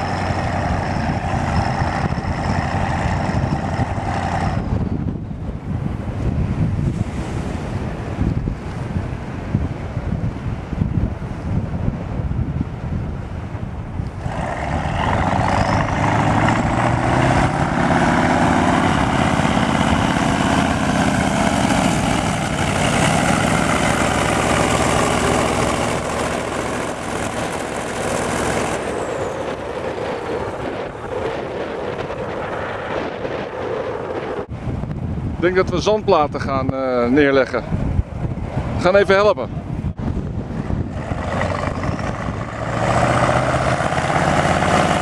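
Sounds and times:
truck diesel engine running: 0.0s - 5.2s, 14.1s - 33.4s, 40.6s - 45.0s
wind buffeting microphone: 0.0s - 45.0s.

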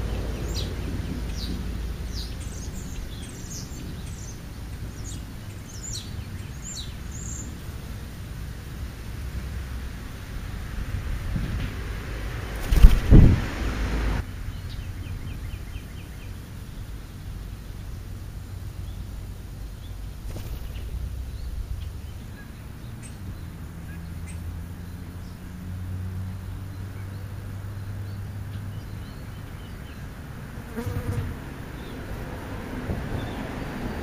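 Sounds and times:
insect buzzing: 30.6s - 31.9s.

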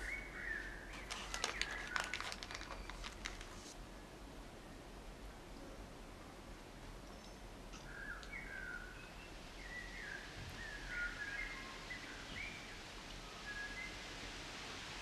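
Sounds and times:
faint birdsong: 0.0s - 3.4s, 7.0s - 14.3s
steady hiss: 0.0s - 15.0s.

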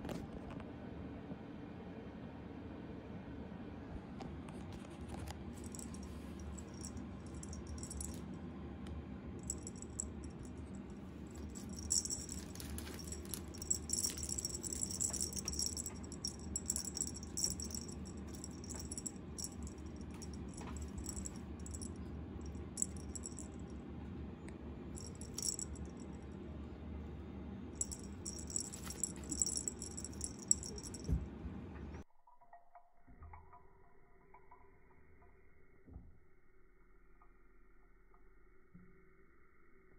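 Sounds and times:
cat toy jingling: 5.6s - 8.2s, 9.4s - 10.5s, 11.4s - 22.0s, 22.6s - 23.6s, 25.0s - 25.8s, 27.8s - 31.2s.

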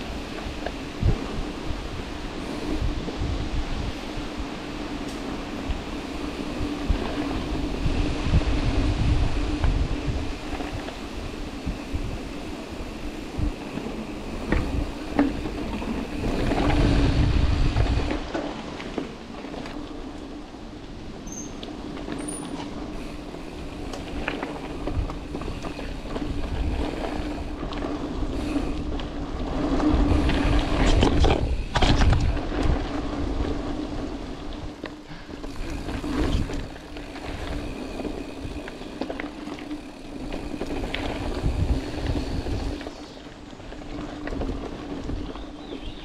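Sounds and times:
wind on microphone: 0.0s - 18.4s, 22.9s - 43.3s
bike tyres rolling over dirt: 0.0s - 46.0s
bike rattling and knocking: 21.2s - 33.8s, 34.6s - 43.2s.

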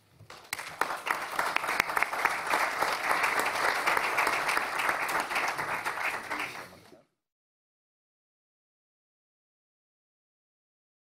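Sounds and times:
audience applauding: 0.3s - 6.8s.

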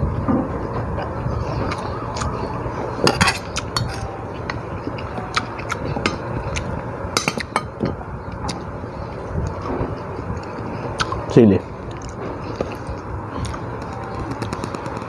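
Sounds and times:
low background rumble: 0.0s - 15.0s
dishes and utensils clinking: 3.0s - 6.3s, 7.2s - 8.0s.

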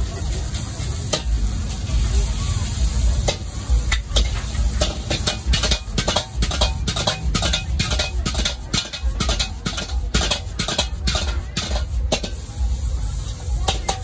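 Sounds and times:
gas burner rumble: 0.0s - 14.0s
metal ladle scraping wok: 2.8s - 12.5s, 13.7s - 14.0s.

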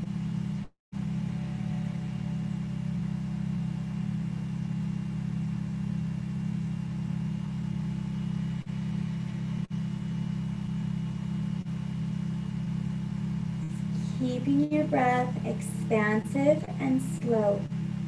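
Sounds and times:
steady low hum: 0.0s - 18.0s
faint high steady tones: 13.6s - 17.9s.

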